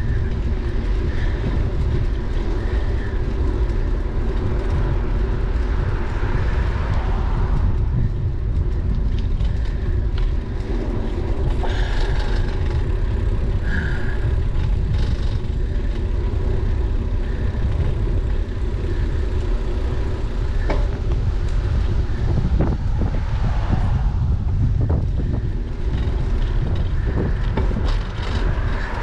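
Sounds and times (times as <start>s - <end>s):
road and bike noise: 0.0s - 29.0s
wind buffeting microphone: 0.0s - 29.0s.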